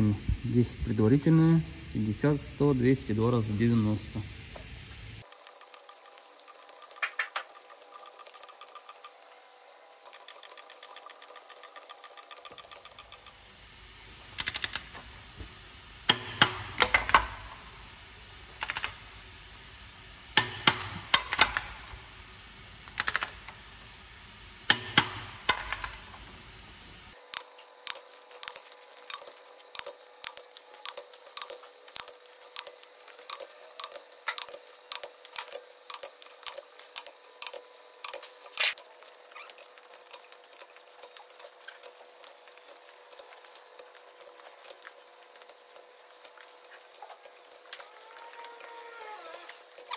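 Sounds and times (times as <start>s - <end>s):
fast ratchet clicks: 5.2s - 9.2s, 9.9s - 13.5s, 14.4s - 14.9s, 16.1s - 17.4s, 18.6s - 19.0s, 20.4s - 21.8s, 22.9s - 23.6s, 27.1s - 49.9s
torque wrench clicks: 10.0s - 13.4s, 14.4s - 14.9s, 16.1s - 17.4s, 18.6s - 19.0s, 20.4s - 21.8s, 22.9s - 23.6s, 27.2s - 49.9s.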